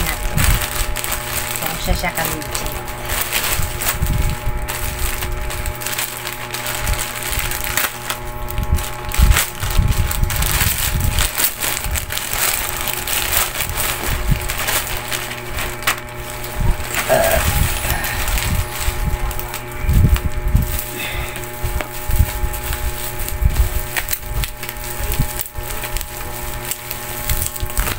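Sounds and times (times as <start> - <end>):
plastic bag crinkling: 0.0 - 27.9.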